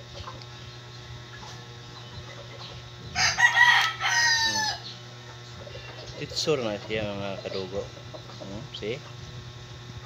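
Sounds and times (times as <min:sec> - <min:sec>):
rooster crowing: 0:03.1 - 0:04.9.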